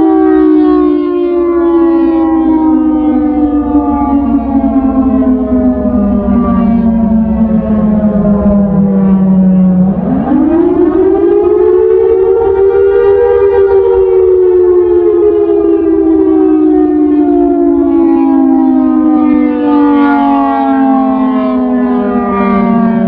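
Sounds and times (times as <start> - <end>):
electronic siren wailing: 0.0 - 23.0.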